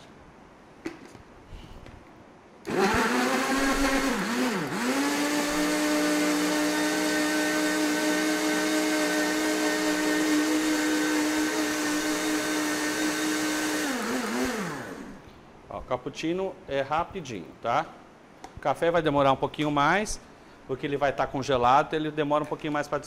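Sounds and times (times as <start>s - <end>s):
blender motor whining: 2.6s - 15.2s.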